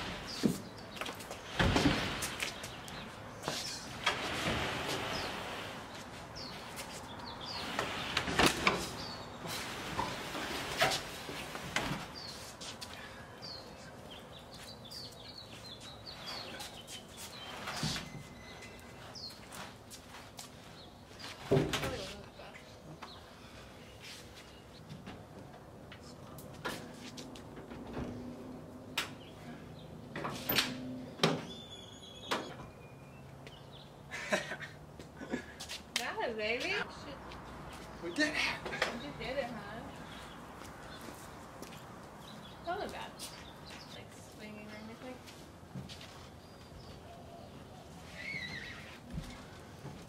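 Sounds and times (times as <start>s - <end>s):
small birds chirping: 0.0s - 4.2s, 4.9s - 26.9s, 31.0s - 34.4s, 35.1s - 49.9s
camper scraping in truck bed: 3.7s - 6.5s, 7.4s - 12.3s.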